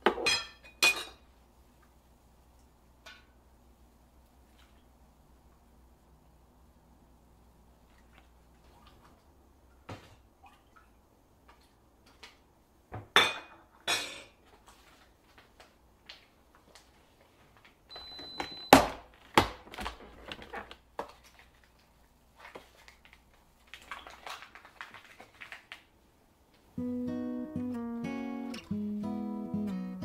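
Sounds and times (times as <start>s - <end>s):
dishes clinking and knocking: 0.0s - 1.2s, 13.0s - 14.4s.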